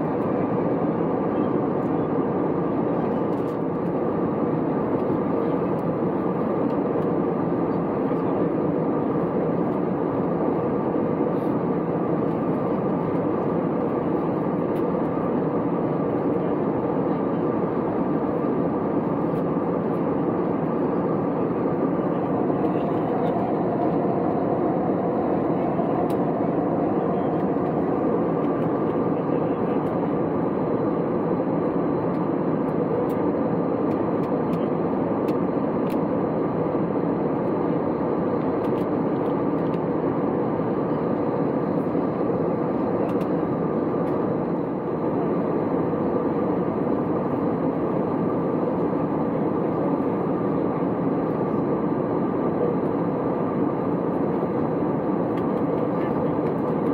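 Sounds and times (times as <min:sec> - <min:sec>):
airplane cabin roar: 0:00.0 - 0:56.9.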